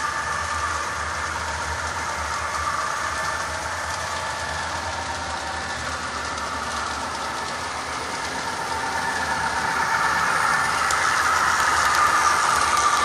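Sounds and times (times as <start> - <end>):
model diesel locomotive engine: 0.0 - 13.0.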